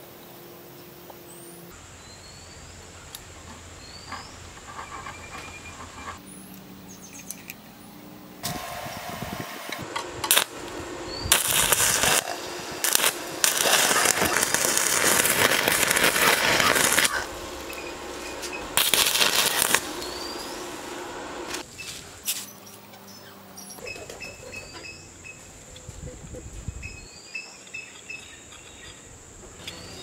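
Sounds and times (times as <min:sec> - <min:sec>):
welding arc crackling: 0:08.4 - 0:22.5.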